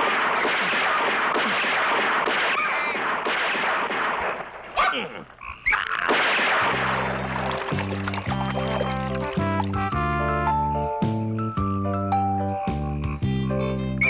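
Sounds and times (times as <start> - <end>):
cartoon shotgun fire: 0.0 - 4.6, 6.0 - 7.3
ducks squawking: 4.8 - 9.9
music with low bass line: 7.0 - 14.0.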